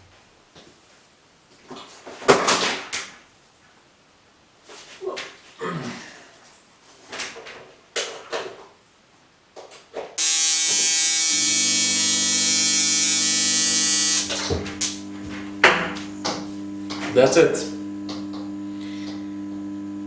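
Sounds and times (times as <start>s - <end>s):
loud electrical buzz: 10.2s - 20.0s
low hum: 10.8s - 20.0s.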